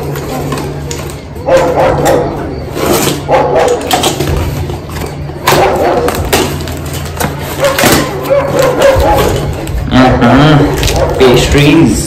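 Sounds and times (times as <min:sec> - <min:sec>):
dog barking: 0:01.4 - 0:02.4, 0:03.2 - 0:03.9, 0:05.4 - 0:06.3, 0:07.5 - 0:09.5, 0:11.0 - 0:11.4
cardboard tearing: 0:02.7 - 0:11.2.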